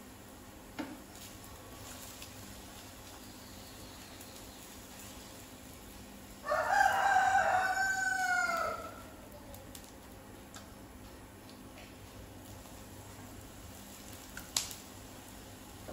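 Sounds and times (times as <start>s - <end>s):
rooster crowing: 6.4s - 9.2s.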